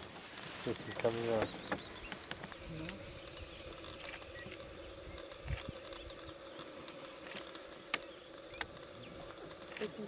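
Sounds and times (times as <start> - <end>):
sharp clicks: 5.2 - 8.9.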